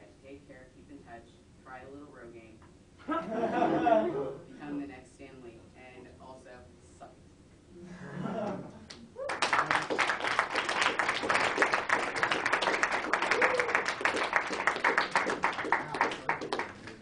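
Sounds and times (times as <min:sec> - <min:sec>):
students applauding: 0:09.2 - 0:17.0.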